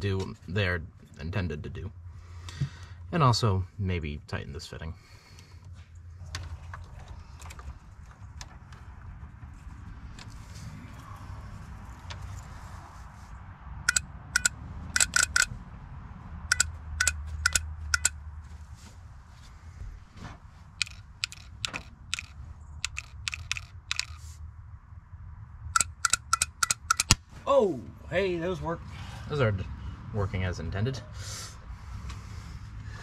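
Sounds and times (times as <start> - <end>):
solenoids clicking: 13.9 - 15.5, 16.5 - 18.2, 20.8 - 24.2, 25.8 - 27.2.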